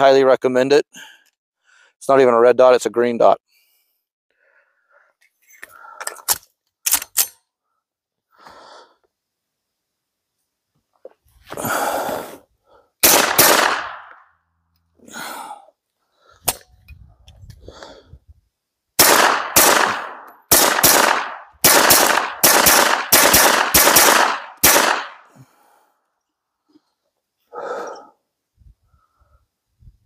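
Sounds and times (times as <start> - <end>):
suppressed pistol shots: 13.0 - 14.2, 19.0 - 25.3.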